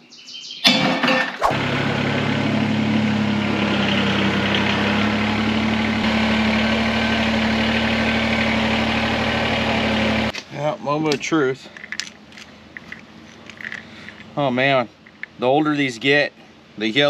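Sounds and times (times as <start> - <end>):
diesel tractor engine idling: 1.6 - 10.3.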